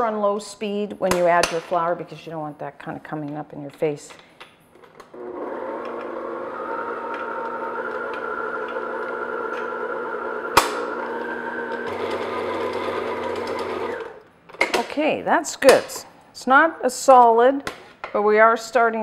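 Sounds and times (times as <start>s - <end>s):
stand mixer motor humming: 5.2s - 14.2s.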